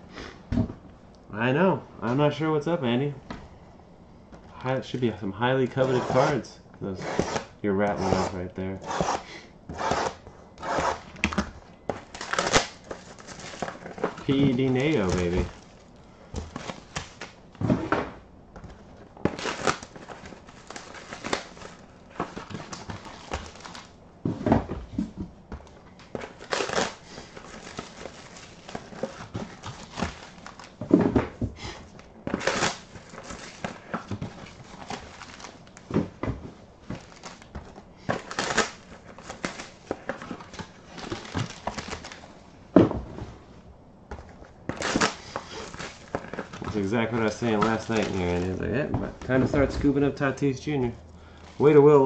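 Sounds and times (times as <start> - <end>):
plastic wrap tearing: 12.0 - 15.8, 19.2 - 24.0, 26.3 - 30.8, 32.3 - 35.9, 38.1 - 42.3, 44.7 - 48.7
plastic shrink wrap crinkling: 12.0 - 17.6, 19.1 - 24.0, 26.0 - 30.8, 31.9 - 35.9, 36.8 - 42.4, 44.4 - 49.4.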